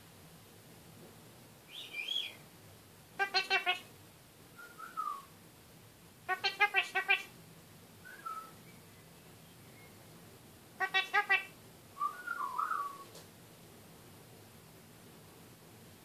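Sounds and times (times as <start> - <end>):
soft whistled bird notes: 1.7 - 2.4, 4.5 - 5.3, 8.0 - 10.0, 12.0 - 13.1
parakeet chattering: 3.2 - 3.9, 6.3 - 7.3, 10.8 - 11.6.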